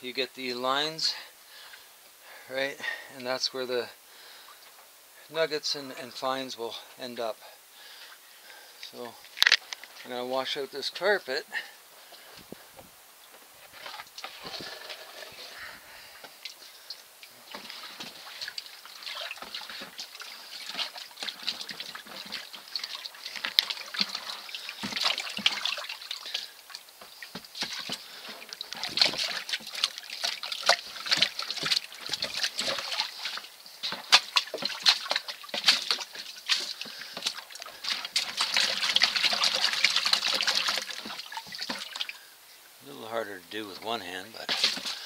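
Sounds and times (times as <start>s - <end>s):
water splashing and trickling: 13.6s - 42.3s, 43.2s - 45.0s
water pouring: 13.7s - 15.8s, 17.2s - 42.2s, 44.3s - 45.0s.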